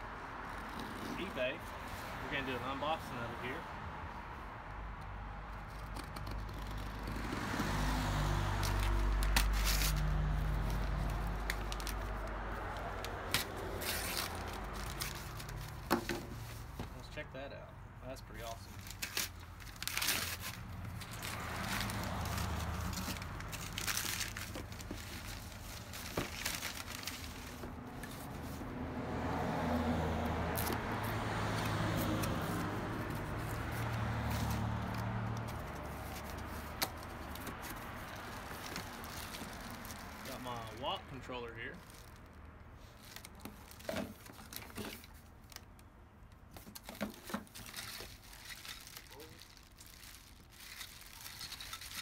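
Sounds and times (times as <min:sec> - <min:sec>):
paper crumpling and tearing: 0:13.3 - 0:15.8, 0:18.7 - 0:28.6, 0:32.1 - 0:40.6, 0:46.8 - 0:52.0
plastic bags crinkling: 0:18.7 - 0:28.0, 0:35.5 - 0:40.4, 0:41.8 - 0:45.6, 0:46.6 - 0:52.0.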